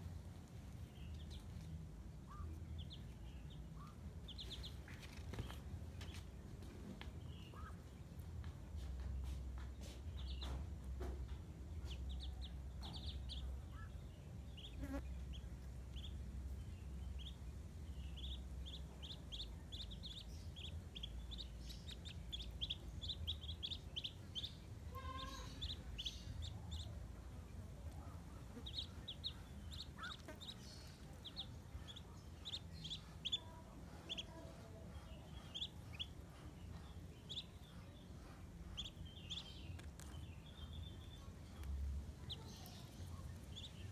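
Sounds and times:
ducklings peeping: 0.0 - 43.9.

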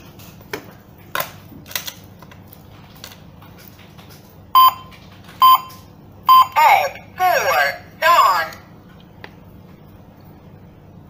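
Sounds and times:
alarm keypad beeping: 4.6 - 6.6
short steady key tones: 4.6 - 6.6.

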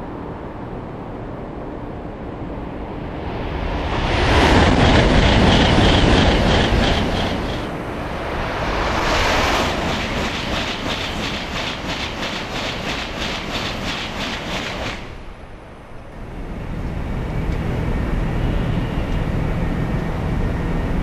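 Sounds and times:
train rushing past: 0.0 - 21.0
rhythmic wheel clatter: 4.5 - 7.7, 9.7 - 15.1.

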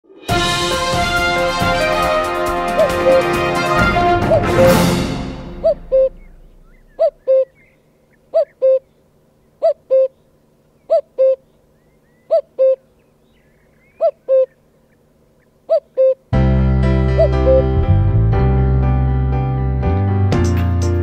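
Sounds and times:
cuckoo calling: 2.6 - 4.9, 5.5 - 16.3, 17.1 - 17.8.

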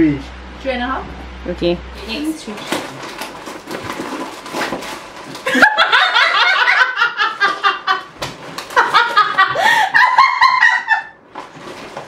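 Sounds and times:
women laughing loudly: 5.4 - 11.2.

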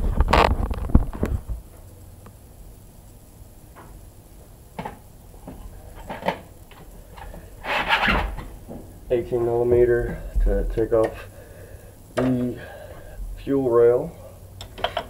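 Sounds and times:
scraping rustle: 0.0 - 1.7, 5.5 - 11.2
faint clicks and knocks: 14.6 - 15.0.

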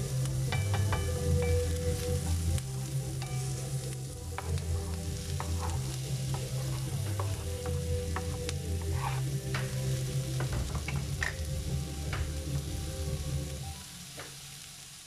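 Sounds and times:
vegetables sizzling in frying pan: 0.0 - 15.0
wooden spatula scraping pan: 5.3 - 11.4.

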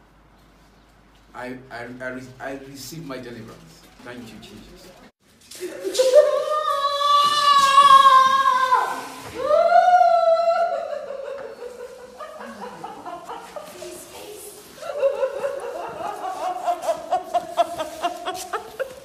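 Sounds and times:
woman wailing: 5.9 - 11.3.

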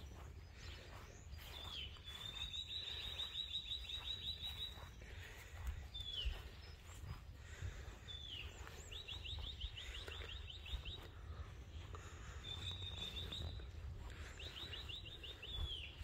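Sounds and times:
songbird trilling: 1.4 - 5.0, 12.4 - 13.8.

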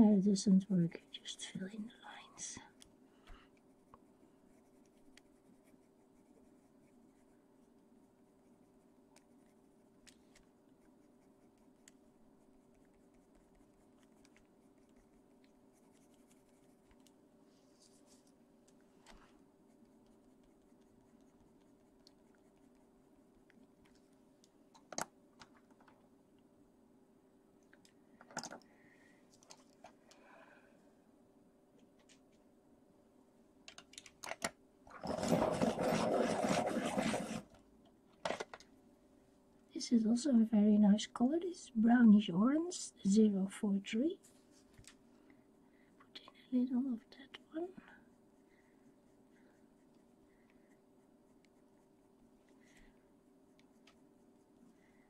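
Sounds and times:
faint steady hum: 0.0 - 55.0
pencil scratching on paper: 3.5 - 18.4, 19.1 - 23.0, 35.0 - 37.6
pencil being sharpened: 34.9 - 37.5.

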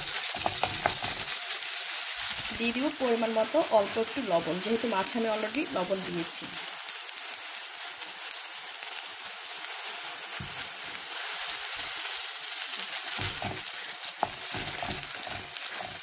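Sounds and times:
paste sizzling in hot oil: 0.0 - 16.0
wooden spatula scraping a pot: 13.0 - 16.0.

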